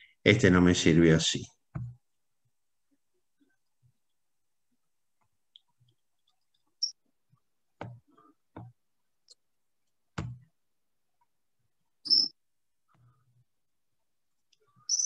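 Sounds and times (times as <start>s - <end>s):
short high-pitched chirps: 12.0s - 12.4s.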